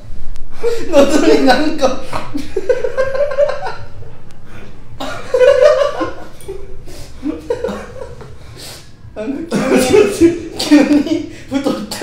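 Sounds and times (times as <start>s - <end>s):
young men laughing: 0.6s - 4.0s, 5.0s - 8.5s, 9.4s - 12.0s.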